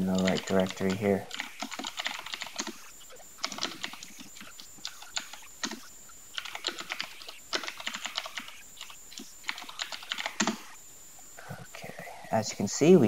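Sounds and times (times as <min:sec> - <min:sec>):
typing on computer keyboard: 0:00.0 - 0:10.8.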